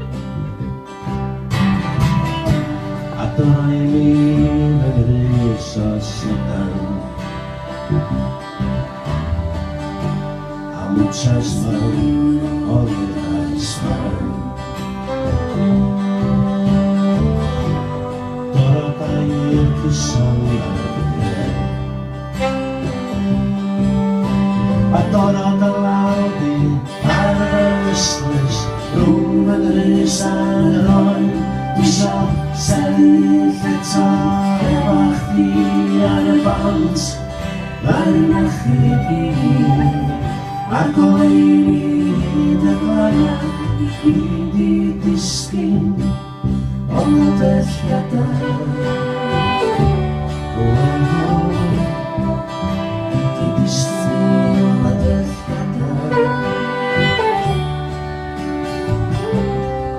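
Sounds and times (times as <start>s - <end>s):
acoustic guitar strumming: 0.0s - 59.9s
man singing into microphone: 3.0s - 7.4s, 10.6s - 14.7s, 18.5s - 21.9s, 24.8s - 46.3s, 46.9s - 57.6s.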